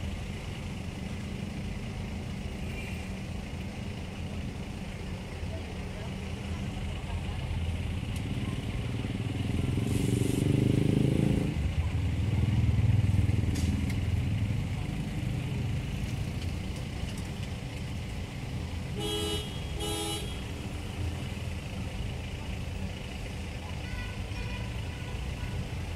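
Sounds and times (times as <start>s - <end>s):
vehicle engines passing: 0.0s - 25.9s
car horn honks: 18.9s - 20.5s, 23.8s - 25.7s.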